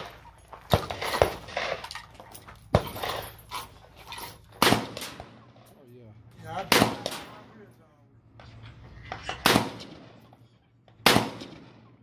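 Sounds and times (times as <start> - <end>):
faint gunshots: 4.6 - 5.5, 6.6 - 7.5, 9.2 - 10.2, 11.0 - 12.0
loud rifle shots: 4.6 - 5.6, 6.6 - 7.5, 9.3 - 10.3, 11.0 - 12.0.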